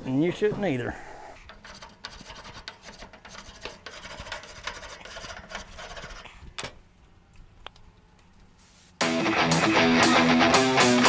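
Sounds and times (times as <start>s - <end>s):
grill grates being scrubbed: 1.5s - 6.3s.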